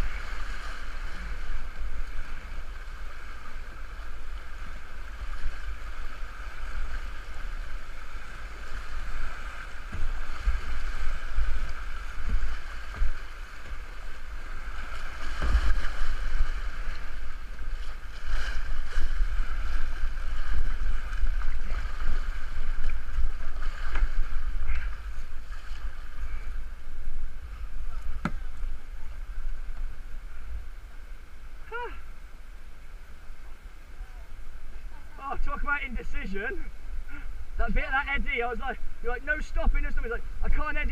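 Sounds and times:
wind rumble on microphone: 0:00.0 - 0:35.6
rushing river water: 0:00.0 - 0:40.9.

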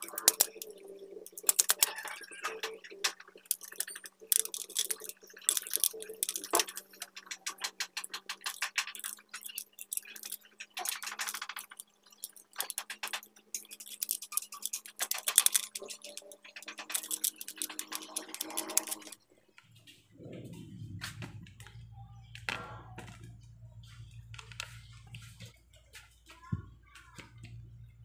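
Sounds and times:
grip tape crackling under hands: 0:00.0 - 0:19.2
faint steady hum: 0:15.8 - 0:28.0.

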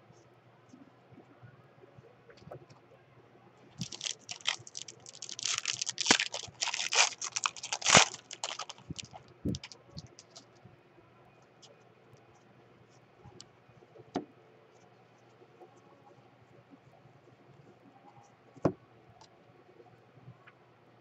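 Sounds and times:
cards rustling: 0:03.8 - 0:10.4
foil wrapper tearing and crinkling: 0:03.8 - 0:10.4.

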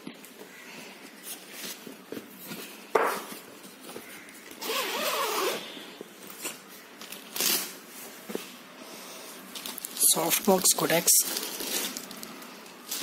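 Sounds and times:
zipper pulled open: 0:04.6 - 0:05.7.

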